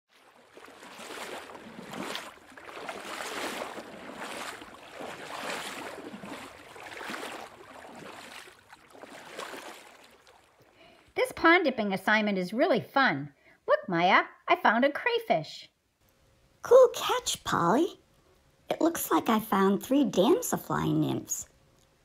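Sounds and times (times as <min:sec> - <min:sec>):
water lapping at a shore: 0:00.1 - 0:11.2.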